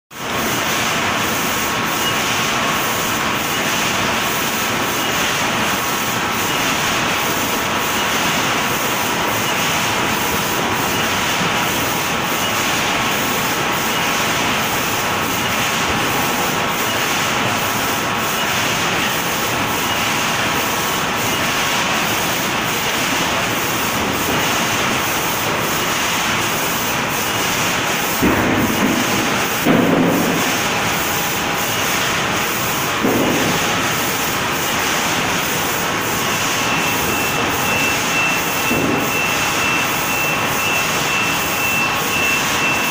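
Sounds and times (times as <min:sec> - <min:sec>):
packing line machinery running: 0:00.2 - 0:42.9.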